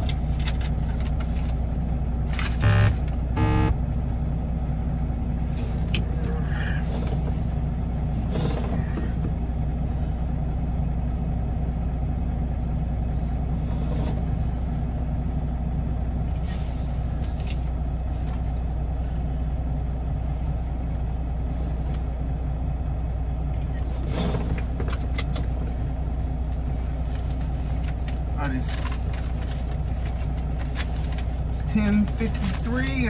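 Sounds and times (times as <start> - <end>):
truck engine running: 0.0 - 33.0
creaks and rattles: 5.8 - 9.4, 23.5 - 25.8.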